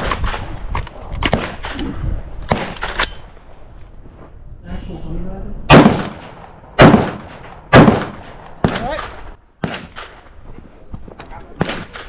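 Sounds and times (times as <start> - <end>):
rifle shots echoing: 1.2 - 1.8, 2.5 - 3.3, 5.7 - 10.3, 11.6 - 12.0.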